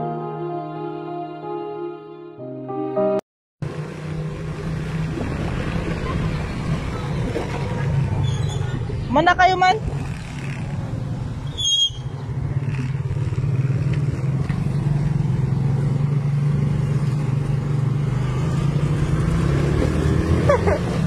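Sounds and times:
high-pitched squeak: 11.5s - 12.1s
motorcycle engine running: 12.2s - 18.1s.

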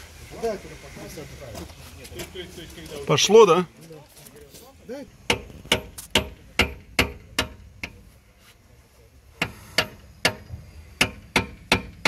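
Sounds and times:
hammer striking metal: 5.3s - 8.0s, 9.4s - 12.0s.

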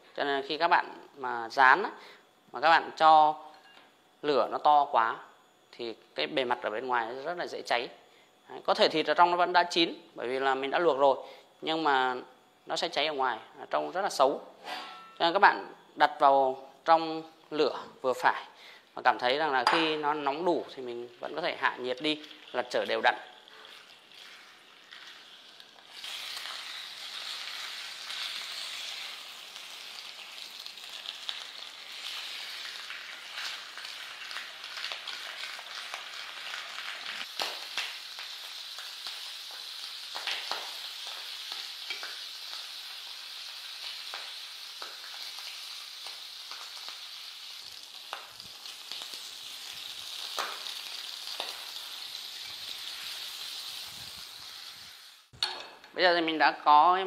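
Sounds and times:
meat sizzling in oil: 19.9s - 55.4s.

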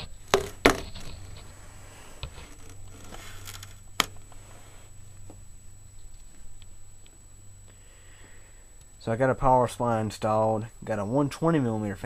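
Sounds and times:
handling rustling: 0.0s - 5.4s
faint low hum: 0.0s - 12.0s
camera handling knocks: 0.3s - 1.1s.

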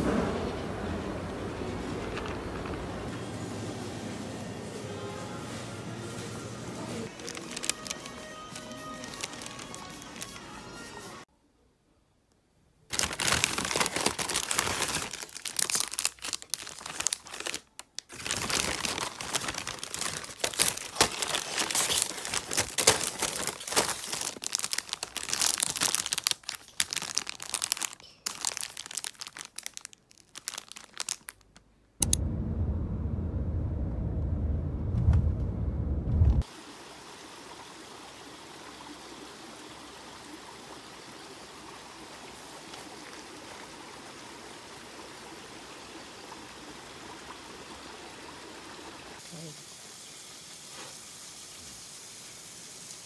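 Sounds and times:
paper bag crinkling: 7.0s - 10.6s, 12.9s - 31.6s
car cabin rumble: 32.0s - 36.4s.

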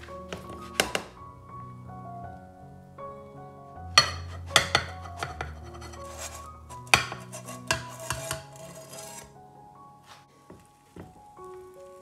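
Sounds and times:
background music: 0.0s - 12.0s
frying pan clinking on hob: 4.0s - 5.6s
soft scraping: 4.0s - 9.4s.

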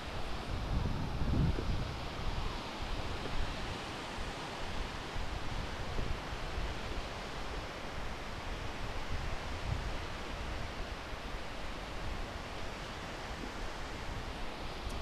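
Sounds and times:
wind buffeting microphone: 0.3s - 3.8s.

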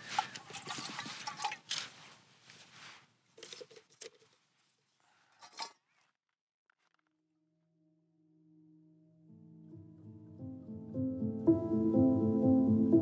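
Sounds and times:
utensil scraping in a pot: 0.0s - 6.1s
rustling: 0.0s - 6.2s.

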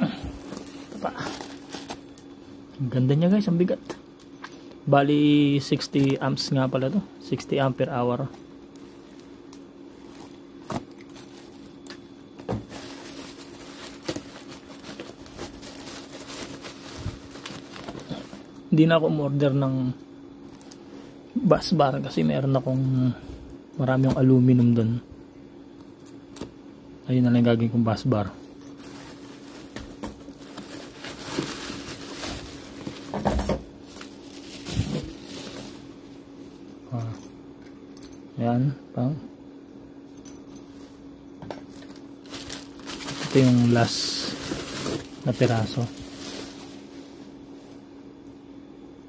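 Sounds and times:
steady low hum: 0.0s - 49.0s
bubble wrap crinkling: 0.3s - 2.4s, 8.8s - 18.6s, 28.6s - 36.2s, 41.7s - 47.3s.

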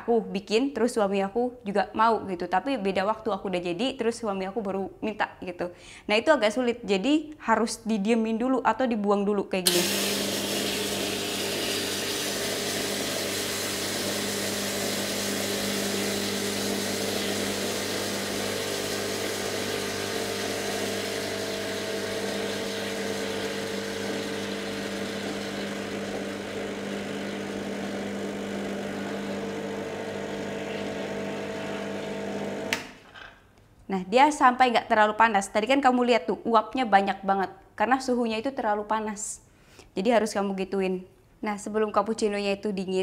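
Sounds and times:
hot water gushing and hissing: 9.7s - 32.7s
espresso machine pump humming: 9.7s - 32.9s.

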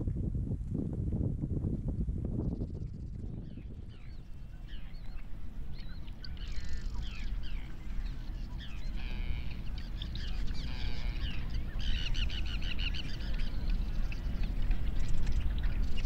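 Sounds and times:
steady low rumble: 0.0s - 16.0s
flock of birds calling: 5.9s - 16.0s.

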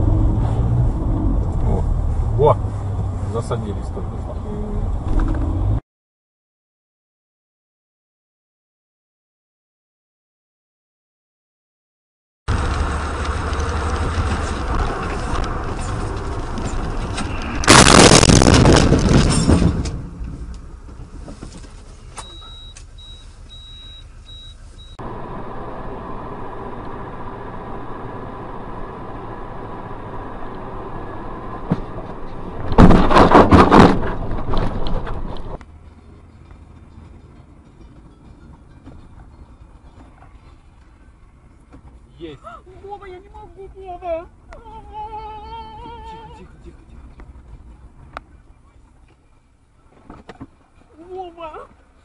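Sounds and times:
road and engine noise: 0.0s - 5.8s, 12.5s - 52.0s
vehicle collision bursts: 12.5s - 21.2s, 31.2s - 35.6s.

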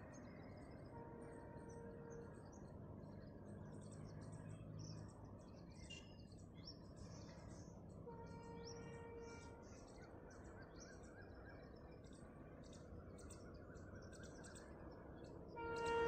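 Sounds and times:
distant horn: 8.1s - 9.7s, 15.6s - 16.0s.

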